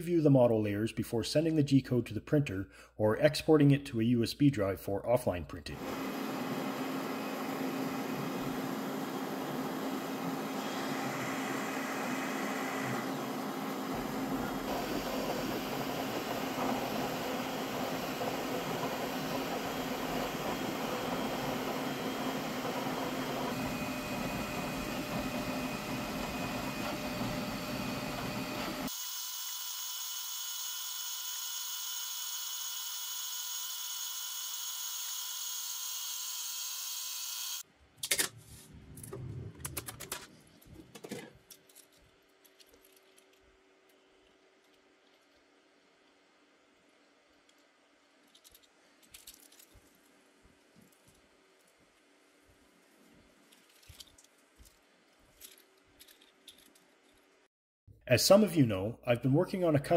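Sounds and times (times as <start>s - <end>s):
printer fans and motors whirring: 5.8s - 37.6s
plastic clicking and rattling: 39.6s - 43.5s, 47.5s - 49.8s, 55.4s - 57.2s.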